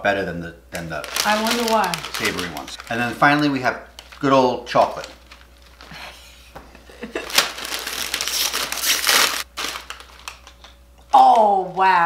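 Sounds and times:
snack bag crinkling: 0.8 - 6.2, 7.0 - 10.8.

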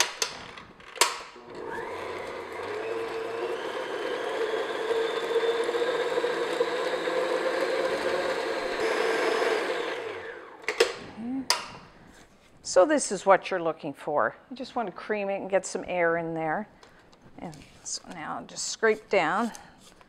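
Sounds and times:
stand mixer motor whining: 1.4 - 10.7.

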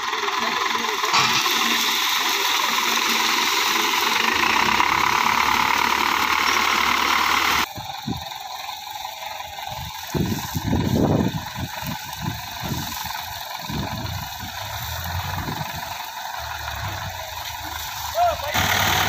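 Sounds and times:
tractor engine running at low revs: 0.0 - 19.0.

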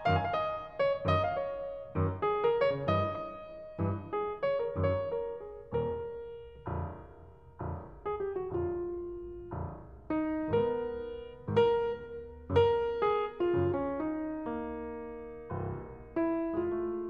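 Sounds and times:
piano chords ringing: 0.0 - 17.0.

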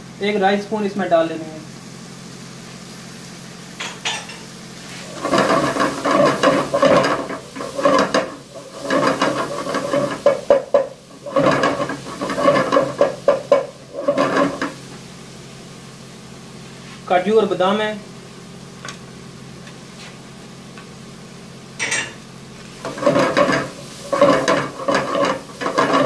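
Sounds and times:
vegetables sizzling: 0.8 - 26.0
metal spatula scraping a pot: 5.0 - 14.8, 22.9 - 26.0.

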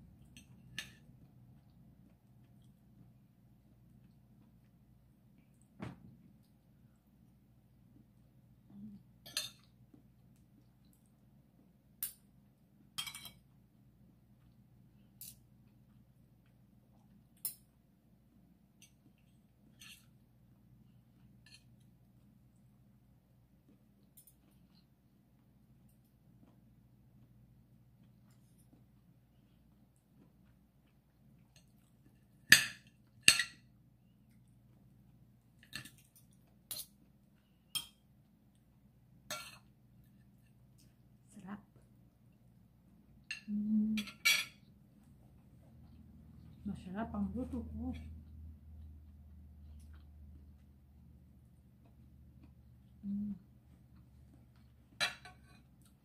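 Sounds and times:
cutlery clinking on a plate: 13.0 - 13.4, 32.5 - 33.7, 39.3 - 39.7, 43.3 - 44.7, 55.0 - 55.7
cutlery clinking on plate: 13.0 - 13.4, 55.0 - 55.7.

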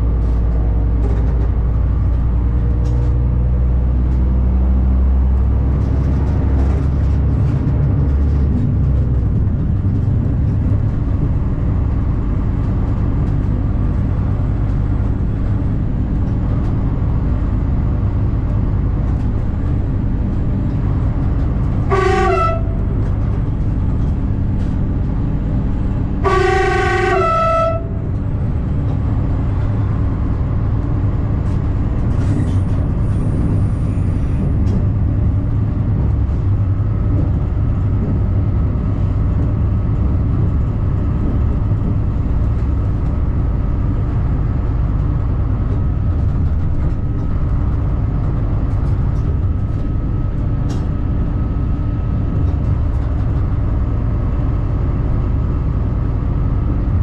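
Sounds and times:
railcar engine running: 0.0 - 57.0
train horn blasts: 21.8 - 23.0, 26.2 - 28.1.

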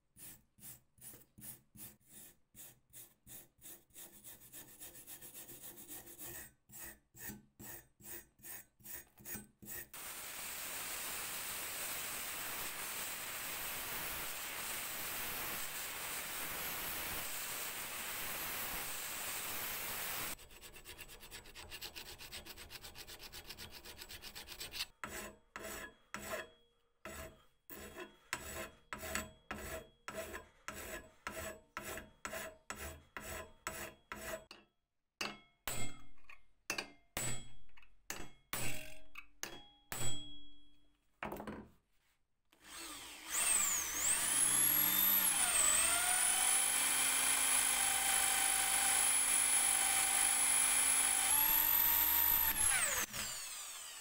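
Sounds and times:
file stroking saw blade: 0.2 - 10.0, 13.5 - 34.6, 42.7 - 54.0
wire brush scrubbing rust: 20.3 - 26.4
angle grinder grinding metal: 42.6 - 54.0.

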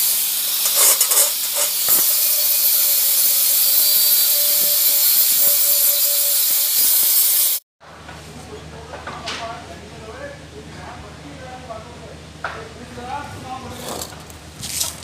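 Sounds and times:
angle grinder grinding metal: 0.0 - 7.6.

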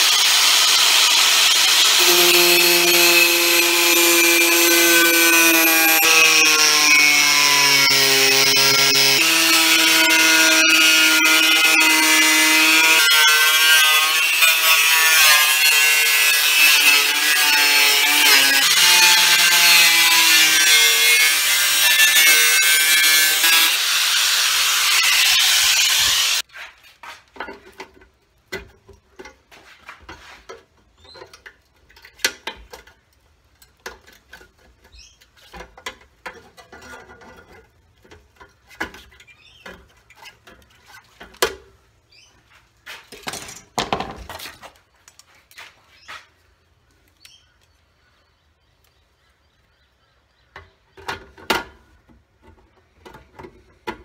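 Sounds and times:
angle grinder cutting sheet steel: 0.0 - 26.5.

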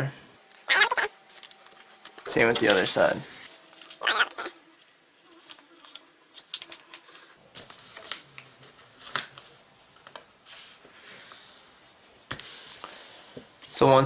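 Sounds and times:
paper rustling and sliding: 0.5 - 4.1, 4.7 - 14.0
paper crackling: 0.5 - 10.8.

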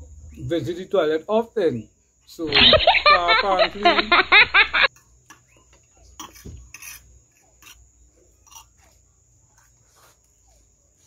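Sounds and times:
fork scraping on plate: 6.2 - 7.8, 8.4 - 8.9.

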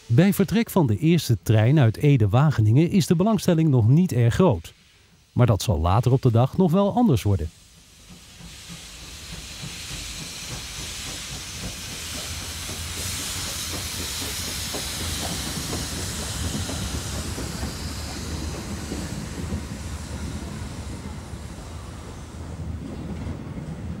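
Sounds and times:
steam locomotive hissing: 0.0 - 24.0
train wheels clicking over rail joints: 6.7 - 24.0.

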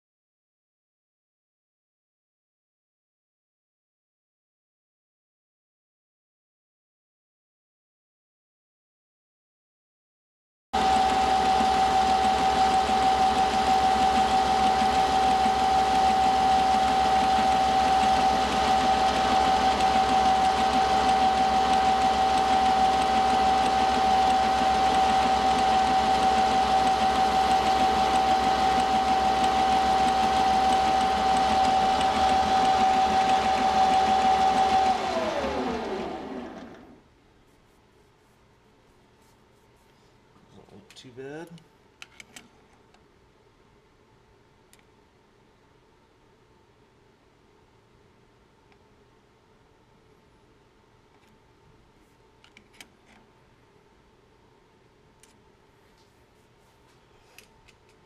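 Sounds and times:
lathe spindle spinning down: 10.8 - 37.0
metal lathe whining: 10.8 - 37.0.

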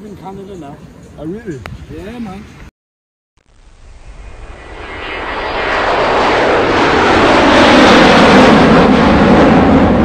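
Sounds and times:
loud rushing noise: 3.6 - 10.0.

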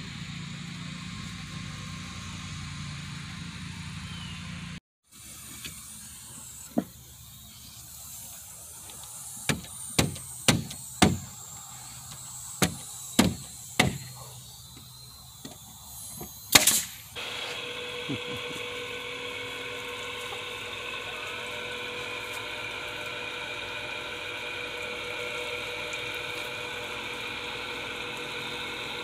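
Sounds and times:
nail gun firing into wood: 9.5 - 11.4, 12.6 - 14.2, 16.2 - 17.0.

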